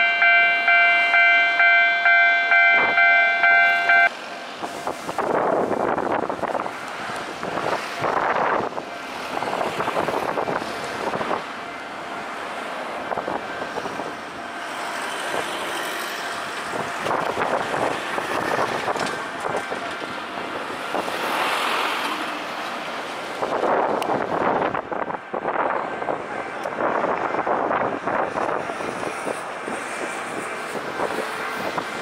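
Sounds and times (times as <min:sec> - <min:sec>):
cars driving past: 0:14.7 - 0:24.2.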